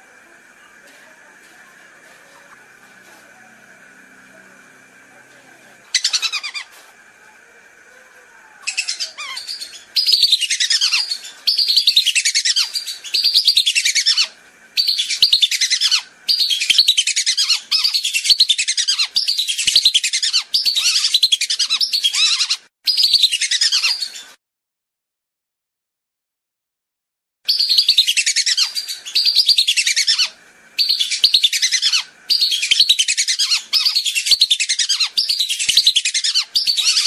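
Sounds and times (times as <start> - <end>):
whistling ducks twittering: 8.6 - 24.3, 27.5 - 37.0.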